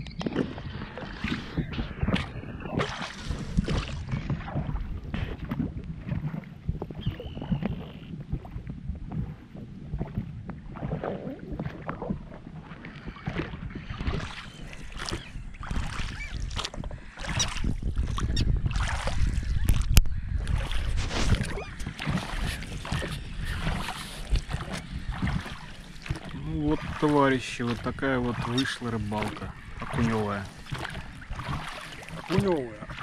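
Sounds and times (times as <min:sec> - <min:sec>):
low rumble: 0:00.0 - 0:12.7
oars splashing in water: 0:00.0 - 0:33.0.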